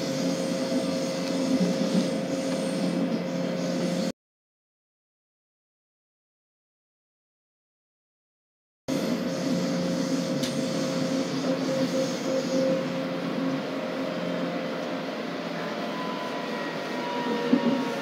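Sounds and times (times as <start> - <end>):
train wheels rumbling on rail: 0.0 - 4.1, 8.9 - 18.0.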